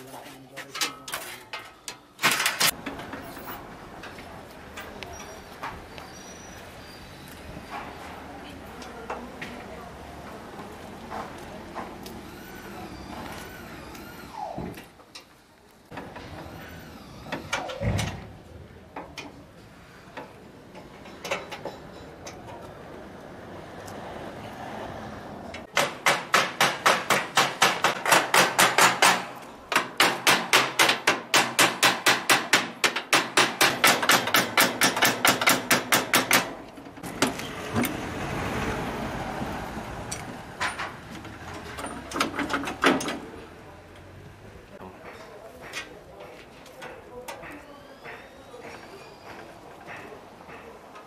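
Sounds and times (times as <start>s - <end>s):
rapid hammering on metal stove: 25.8s - 36.5s.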